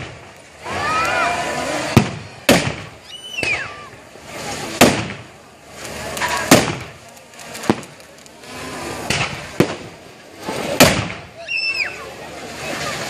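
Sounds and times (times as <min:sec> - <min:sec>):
confetti cannon bangs: 0:00.0 - 0:00.3, 0:01.8 - 0:03.8, 0:04.7 - 0:05.3, 0:06.2 - 0:07.0, 0:09.0 - 0:11.3.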